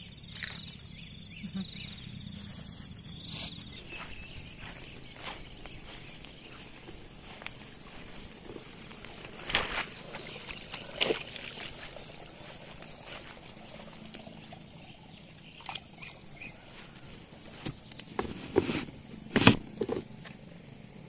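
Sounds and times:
steady high-pitched hum: 0:00.0 - 0:21.0
footsteps rustling through grass: 0:01.6 - 0:14.7, 0:16.3 - 0:18.8.

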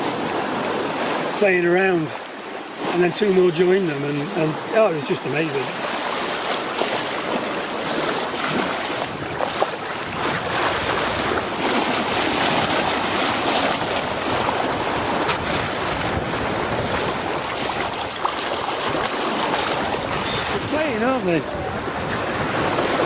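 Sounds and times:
sea water rushing along hull: 0:00.0 - 0:23.0
wind buffeting microphone: 0:05.5 - 0:23.0.

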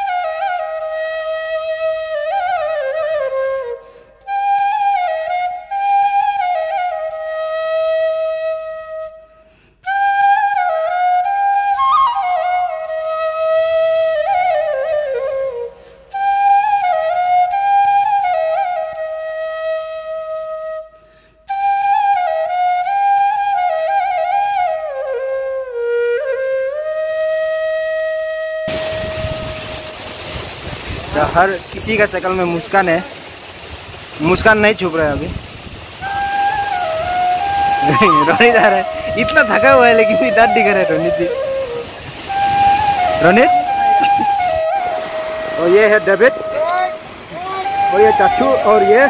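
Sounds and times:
solo flute melody: 0:00.0 - 0:33.4, 0:34.0 - 0:49.0
flute player breathing: 0:03.6 - 0:04.3, 0:09.2 - 0:10.0, 0:15.6 - 0:16.2, 0:20.9 - 0:21.6, 0:35.9 - 0:39.3, 0:41.3 - 0:45.6.

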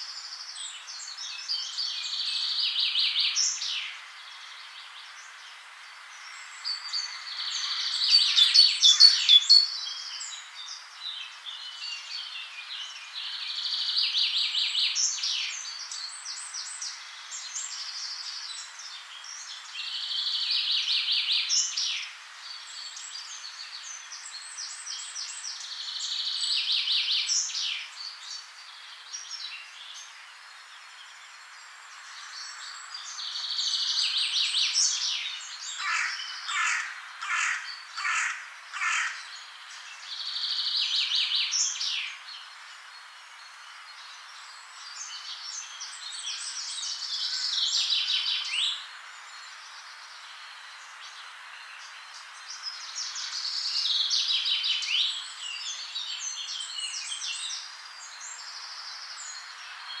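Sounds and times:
faint hiss: 0:00.0 - 1:00.0
songbird trilling: 0:06.7 - 0:10.1, 0:34.8 - 0:42.2.

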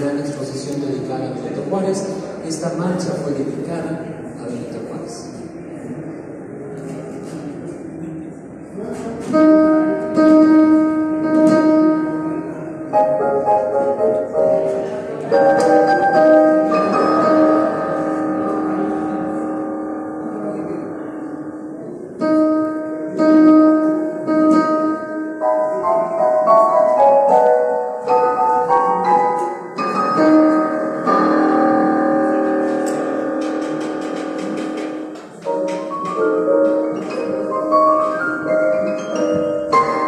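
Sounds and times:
digital piano playing a march: 0:09.3 - 0:40.0.

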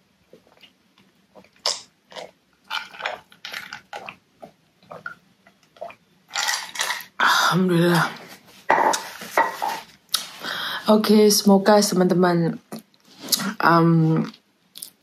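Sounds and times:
person gulping a drink: 0:00.3 - 0:07.2.

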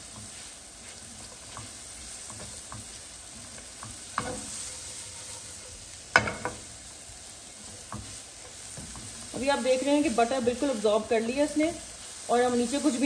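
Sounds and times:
mushrooms sizzling in frying pan: 0:00.0 - 0:13.0
spatula knocking against pan: 0:06.1 - 0:06.6.

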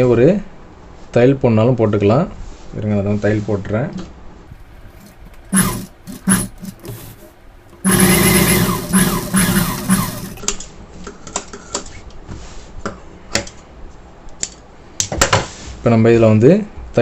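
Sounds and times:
industrial sewing machine stitching: 0:05.5 - 0:07.1, 0:07.8 - 0:10.4.

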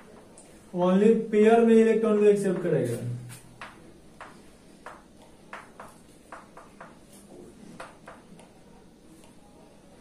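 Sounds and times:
scratching writing strokes: 0:03.3 - 0:08.6.

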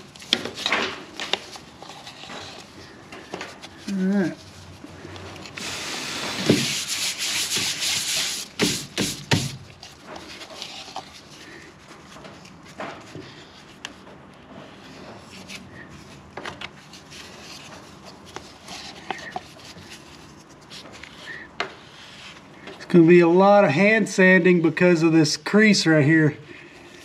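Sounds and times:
sharp knocks: 0:08.6 - 0:09.6.

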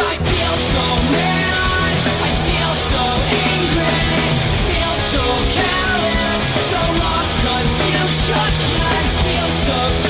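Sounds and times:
distorted electric guitars: 0:00.0 - 0:10.0
drums: 0:00.0 - 0:10.0.

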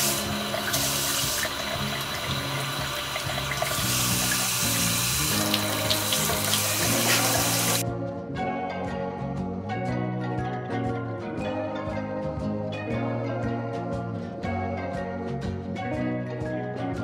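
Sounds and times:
tap water running into basin: 0:00.0 - 0:07.8
background music: 0:00.0 - 0:17.0.

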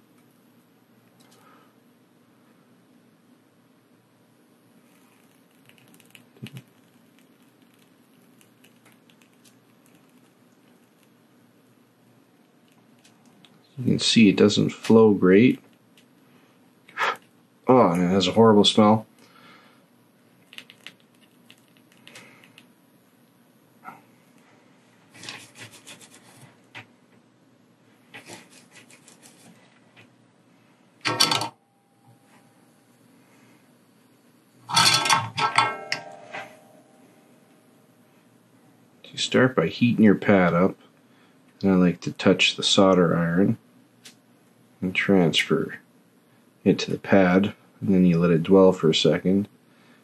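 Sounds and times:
flux crackling under soldering iron: 0:04.8 - 0:14.1, 0:20.2 - 0:22.7.

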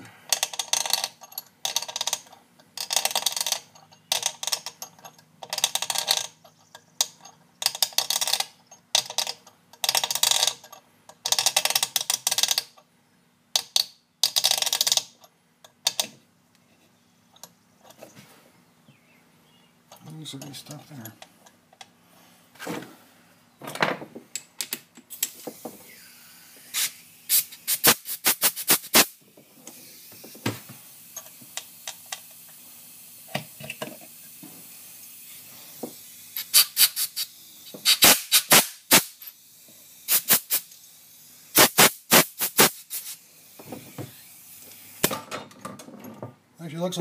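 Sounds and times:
faint steady hiss: 0:16.4 - 0:45.5.

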